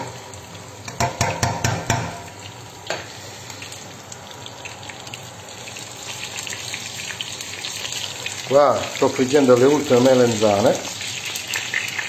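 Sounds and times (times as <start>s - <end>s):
vegetables sizzling in oil: 0.0s - 12.0s
spoon knocking against pot: 0.9s - 2.3s.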